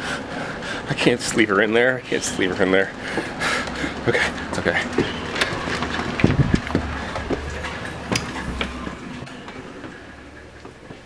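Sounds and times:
low rumble: 3.3 - 10.6.

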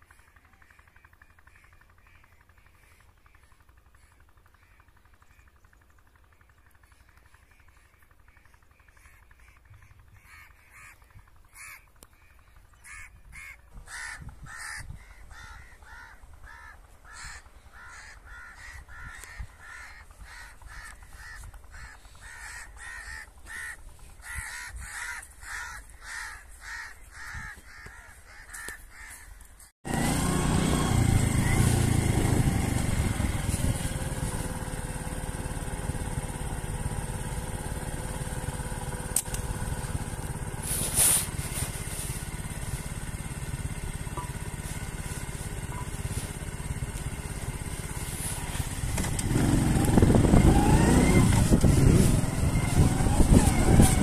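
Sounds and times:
crow cawing: 0.0 - 5.8, 6.8 - 29.6
vehicle engine running: 0.0 - 54.0.

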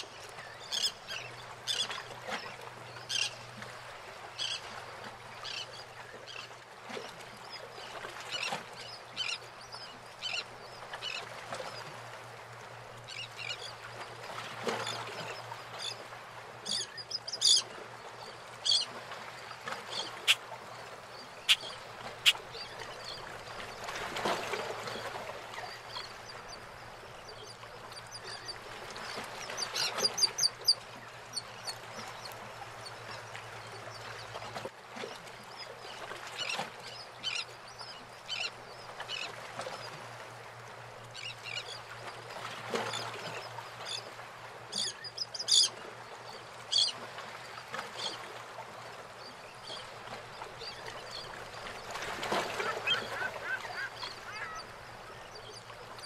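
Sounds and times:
water lapping around boats: 0.0 - 56.0
birds calling: 19.5 - 23.9, 51.2 - 55.7.

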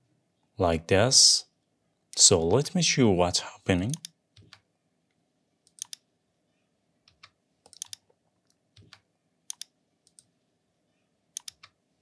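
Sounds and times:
faint low hum: 0.0 - 12.0
keyboard and mouse clicks: 3.9 - 4.7, 5.6 - 6.1, 7.1 - 10.3, 11.3 - 11.8.

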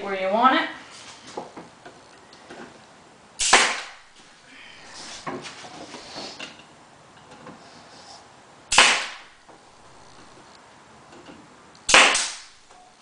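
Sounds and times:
staple gun firing: 11.9 - 12.5.

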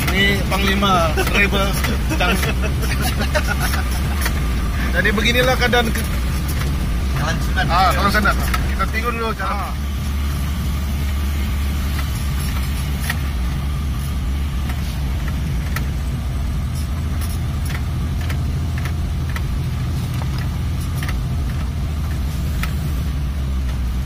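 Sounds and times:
light clicks and rattles: 0.0 - 9.1, 14.0 - 16.0, 16.7 - 22.8
car engine and road drone: 0.0 - 24.0.

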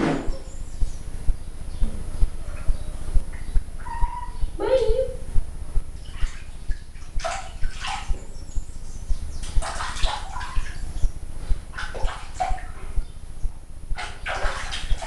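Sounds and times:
water splashing in plastic basin: 6.0 - 8.3, 9.4 - 11.0, 11.6 - 12.8, 14.0 - 15.0.

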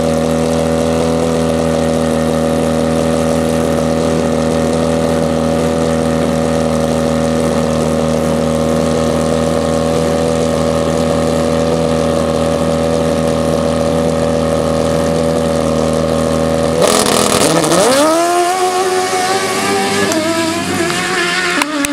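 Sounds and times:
motorcycle engine revving: 0.0 - 21.9
tire rushing on dirt: 0.0 - 21.9.

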